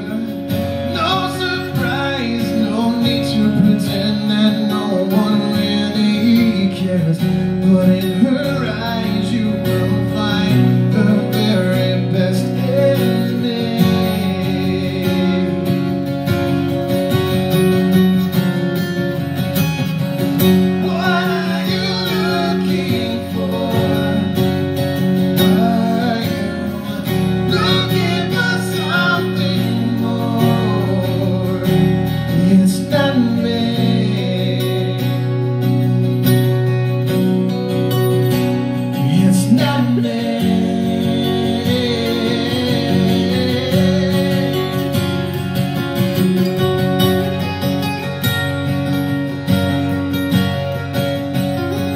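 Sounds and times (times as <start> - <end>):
man singing: 0.0 - 16.2, 20.4 - 35.6, 38.8 - 45.4
acoustic guitar strumming: 0.0 - 51.9.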